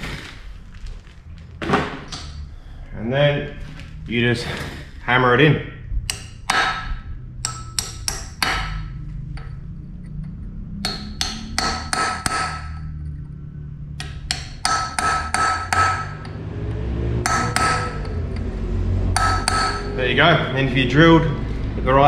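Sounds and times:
hammer striking steel: 6.0s - 9.6s, 10.8s - 13.0s, 14.0s - 16.4s, 17.2s - 18.5s, 19.1s - 20.0s.

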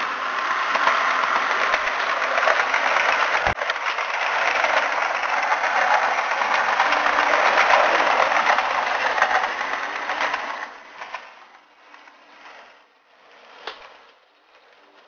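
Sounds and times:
small motor running: 0.0s - 10.7s
model train wheels clattering: 0.0s - 15.0s.

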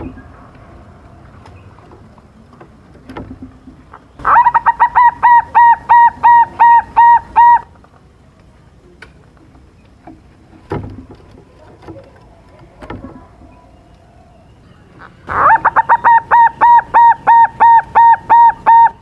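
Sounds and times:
dove cooing: 4.2s - 7.7s, 15.0s - 19.0s.

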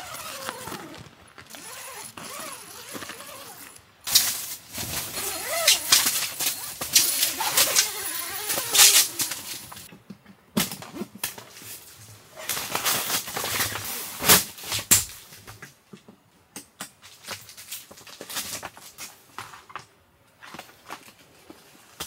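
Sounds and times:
tent fabric rustling: 0.0s - 9.9s.

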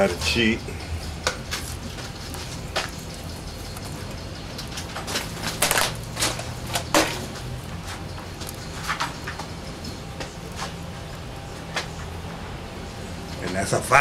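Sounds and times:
low steady background hum: 0.0s - 14.0s
burning paper crackling: 1.2s - 12.1s.

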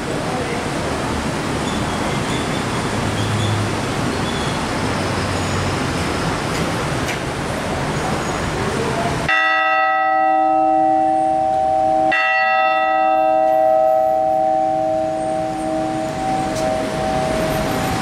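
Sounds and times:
background noise rush: 0.0s - 18.0s
church bell ringing: 9.3s - 18.0s.

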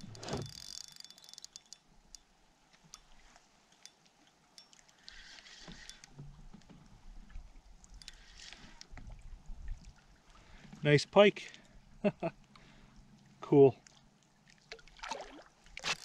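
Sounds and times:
spinning reel clicking: 0.4s - 1.8s.

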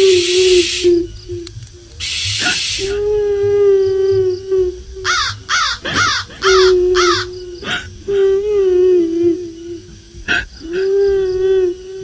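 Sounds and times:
breathy hiss: 0.0s - 12.0s
ghostly woman's wail: 2.8s - 9.6s.

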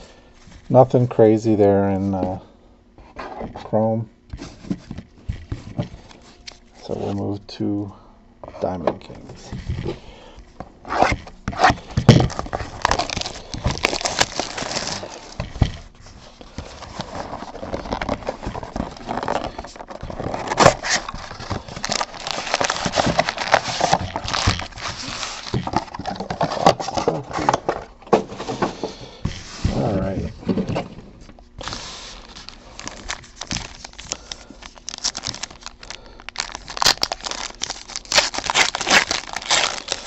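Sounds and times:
cardboard and foil rustling: 10.8s - 40.0s
plastic shrink-wrap crinkling: 11.0s - 27.2s, 31.6s - 40.0s.

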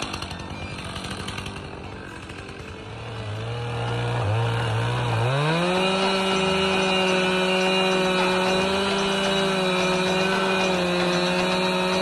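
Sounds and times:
chainsaw engine revving: 0.0s - 12.0s.

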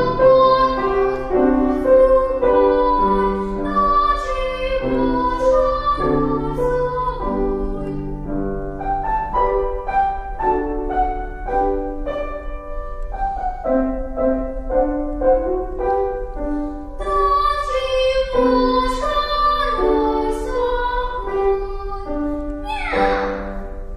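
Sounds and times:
girl singing: 0.0s - 8.6s, 17.0s - 23.9s
piano accompaniment: 0.0s - 23.9s.

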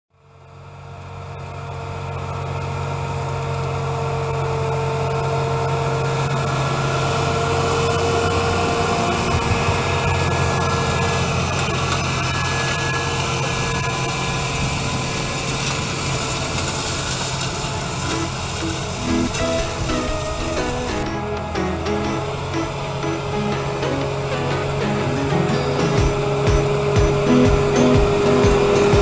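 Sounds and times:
tractor diesel engine under load: 0.2s - 29.0s
high whine: 6.6s - 29.0s.

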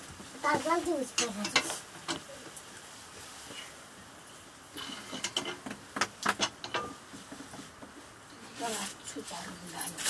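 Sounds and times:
metal utensils clinking and knocking: 1.1s - 2.2s, 4.8s - 7.0s
metal pots scraping: 4.8s - 10.0s.

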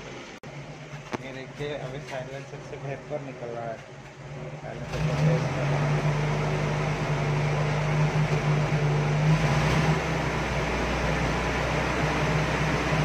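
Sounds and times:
car engine idling: 0.0s - 13.0s
exhaust puttering: 0.0s - 13.0s.

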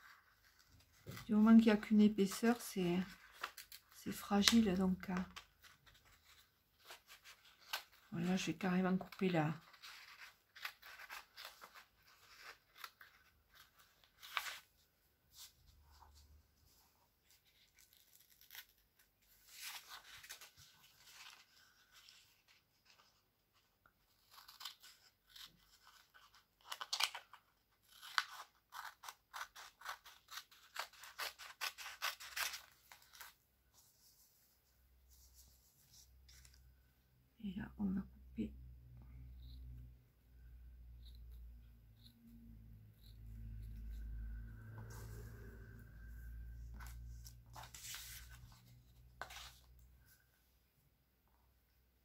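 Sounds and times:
scissors snipping paper: 24.0s - 33.4s.

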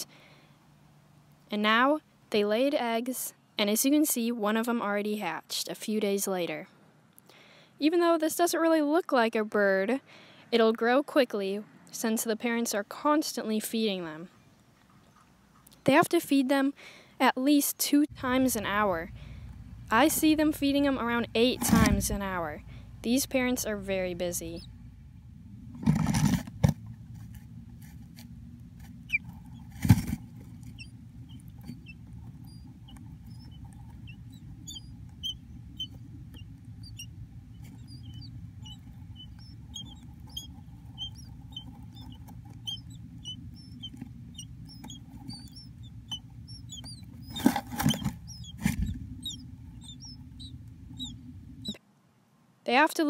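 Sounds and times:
nestlings peeping: 18.2s - 26.4s, 27.8s - 51.8s.

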